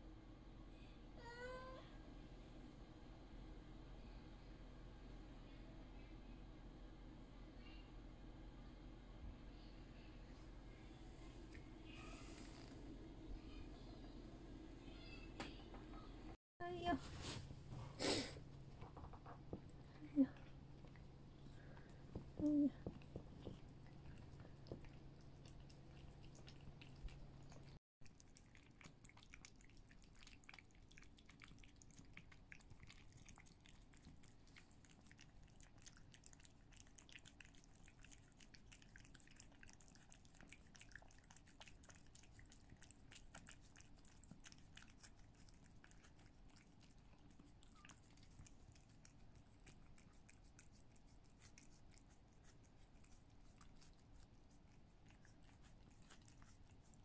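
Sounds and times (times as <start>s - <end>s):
cats licking wetly: 19.6s - 57.0s.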